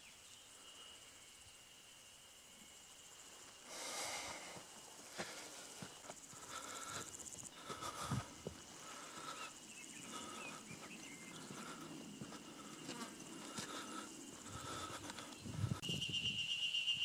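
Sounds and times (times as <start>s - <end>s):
high buzzing insect trill: 0.0s - 17.0s
short high insect call: 0.0s - 17.0s
soft footsteps on dirt path: 3.3s - 15.9s.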